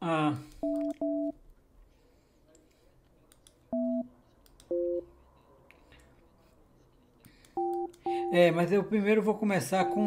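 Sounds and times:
faint clicks: 2.5s - 3.6s
phone keypad two-tone beeps: 7.6s - 8.4s, 9.8s - 10.0s.

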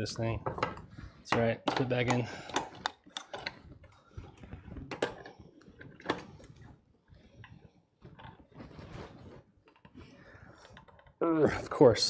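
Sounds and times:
metal clicks and knocks: 0.3s - 6.4s.

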